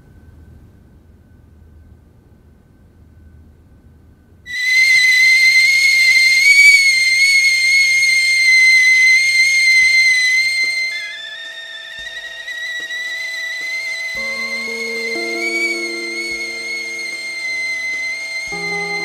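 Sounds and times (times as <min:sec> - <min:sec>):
kettle whistling: 0:04.5 - 0:19.0.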